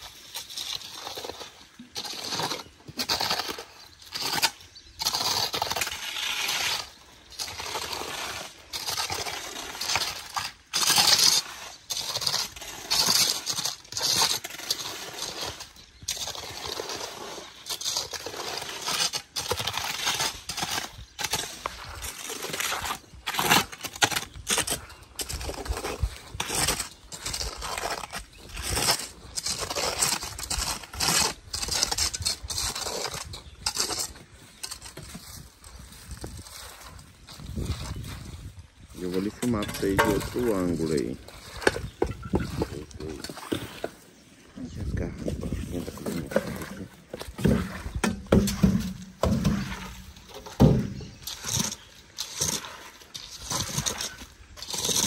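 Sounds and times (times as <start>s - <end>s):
trowel scraping mortar: 0.0s - 55.0s.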